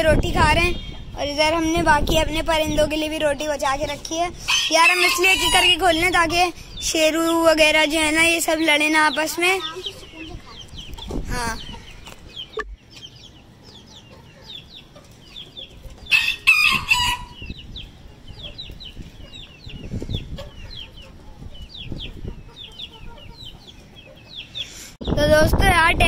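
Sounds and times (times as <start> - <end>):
chicks peeping: 0.2 - 25.3
chickens pecking on concrete: 13.0 - 16.6.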